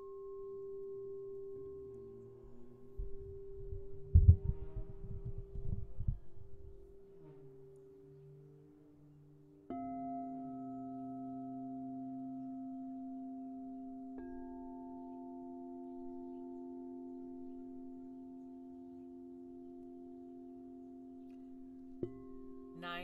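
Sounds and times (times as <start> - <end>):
singing bowls ringing: 0.0 - 23.0
mallet striking bowl: 22.0 - 23.0.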